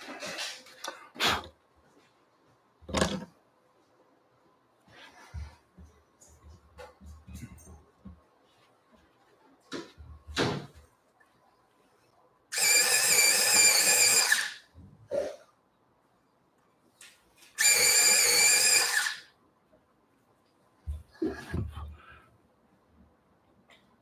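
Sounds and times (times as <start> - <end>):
electric pencil sharpener whine: 12.5 - 14.6, 17.6 - 19.3.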